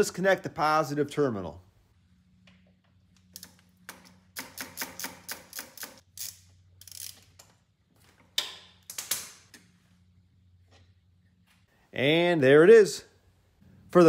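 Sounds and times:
socket ratchet clicking: 3.2 - 7.4.

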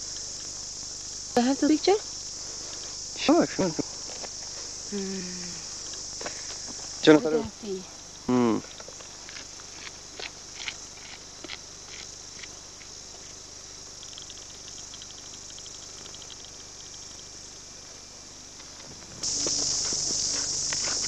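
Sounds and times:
insect chorus: 0.0 - 21.0
fast run of ticks: 14.0 - 17.3.

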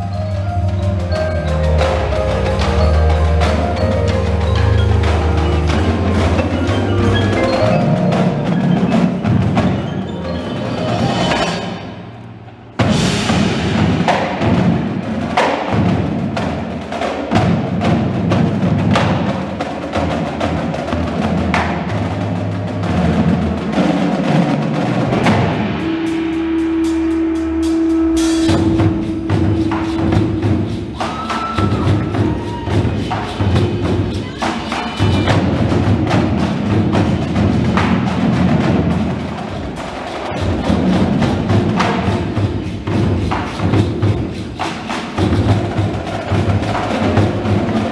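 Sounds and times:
keyboard percussion: 0.0 - 47.9
marching drums: 0.0 - 47.9
held tone: 25.6 - 32.4.

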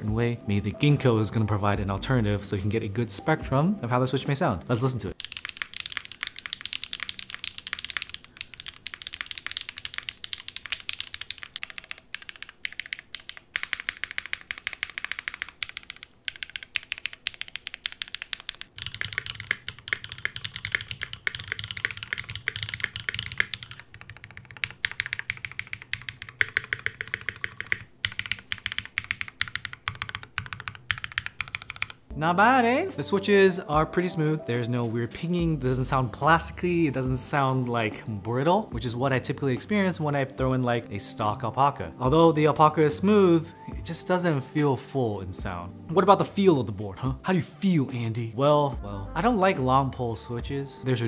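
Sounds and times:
typing on mechanical keyboard: 5.1 - 32.0.

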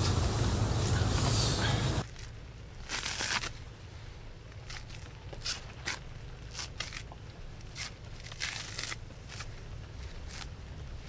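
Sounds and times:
steady low rumble: 0.0 - 11.0
coconut husk ripping crackles: 2.0 - 3.8, 4.5 - 11.0.

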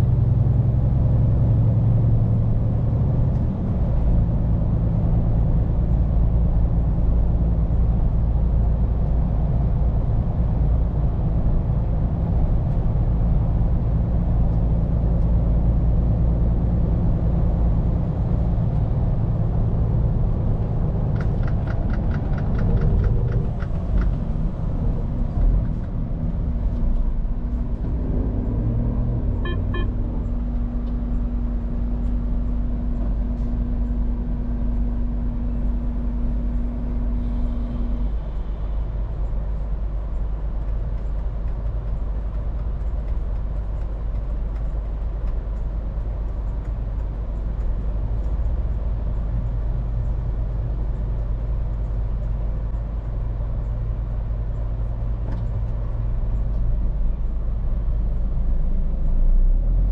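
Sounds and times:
truck diesel engine rumble: 0.0 - 59.9
quick ticks: 21.2 - 24.3.

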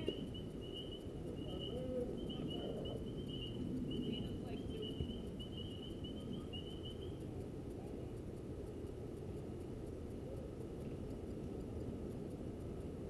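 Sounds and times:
thin high chirping: 0.0 - 7.3
low outdoor rumble: 0.0 - 13.0.

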